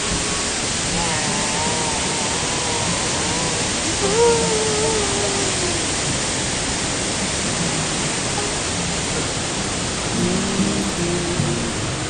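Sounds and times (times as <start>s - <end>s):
faint tone sliding down: 0.0s - 6.3s, 10.0s - 12.0s
waterfall rushing water: 0.0s - 12.0s.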